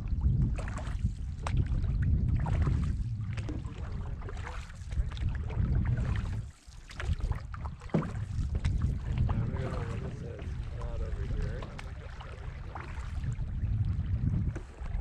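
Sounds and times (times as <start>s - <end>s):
canoe paddle splashes and knocks: 0.0s - 15.0s
wind buffeting microphone: 0.0s - 15.0s.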